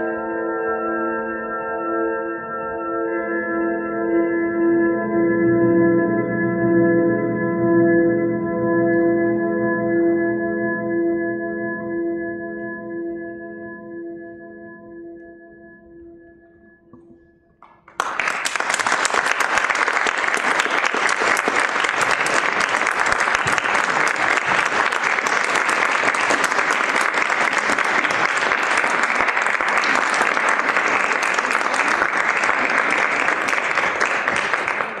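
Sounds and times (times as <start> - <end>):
audience applause: 17.6 - 35.0.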